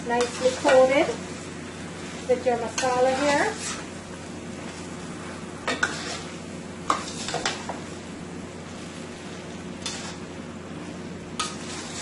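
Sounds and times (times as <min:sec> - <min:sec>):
chicken sizzling in a pot: 0:00.0 - 0:12.0
spoon scraping against pot: 0:02.7 - 0:03.9, 0:05.7 - 0:07.8, 0:09.8 - 0:10.3.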